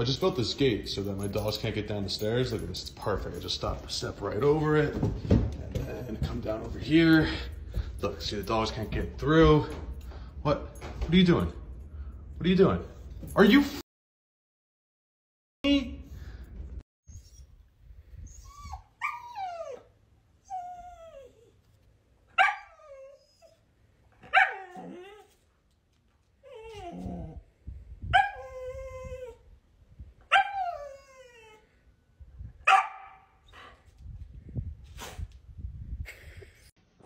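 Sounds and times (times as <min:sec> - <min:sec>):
dog whining barks: 0:18.4 - 0:19.9, 0:22.3 - 0:23.6, 0:24.2 - 0:25.3, 0:28.1 - 0:29.4, 0:30.3 - 0:31.6, 0:32.6 - 0:33.7.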